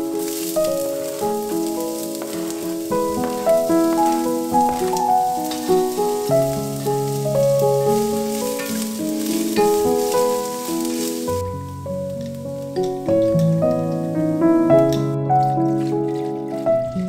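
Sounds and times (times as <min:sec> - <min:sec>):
wooden spoon stirring: 0:00.0 - 0:12.7
background music: 0:00.0 - 0:17.0
onion sizzling in a pot: 0:00.0 - 0:17.0.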